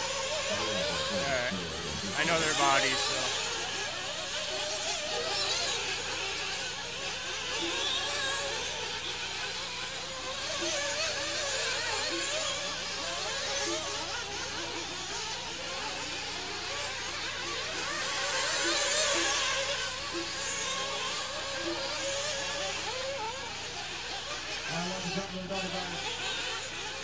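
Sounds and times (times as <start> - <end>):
steady low hum: 0.0 - 5.3
rc car engines buzzing: 0.0 - 27.0.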